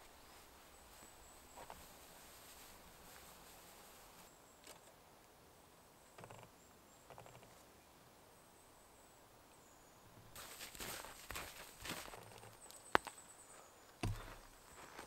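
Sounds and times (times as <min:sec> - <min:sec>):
soft rustles of sticks and leaves: 0:00.0 - 0:05.4, 0:10.2 - 0:15.0.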